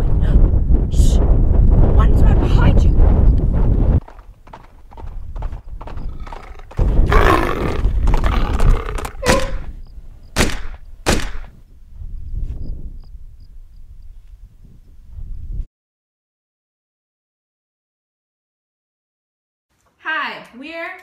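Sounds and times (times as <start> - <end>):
rifle gunshots: 10.4 - 11.5.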